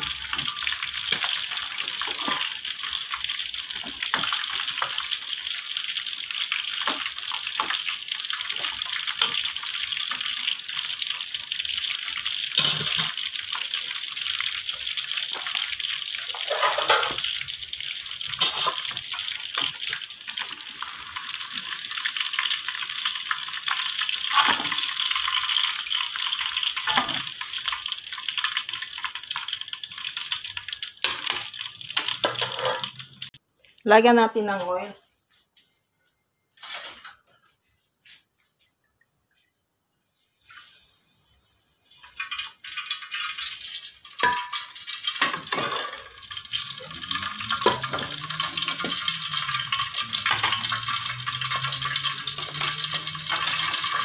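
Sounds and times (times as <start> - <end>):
fish deep-frying in hot oil: 0.0 - 33.4, 40.3 - 54.0
oil popping and spattering: 42.1 - 54.0.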